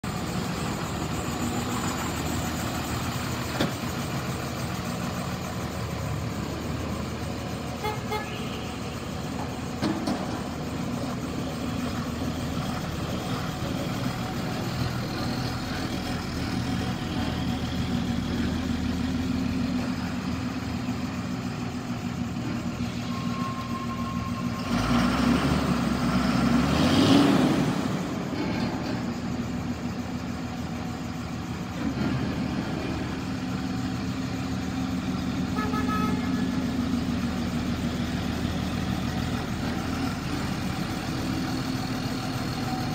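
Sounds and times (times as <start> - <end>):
diesel engine idling: 0.0 - 26.8, 27.4 - 42.9.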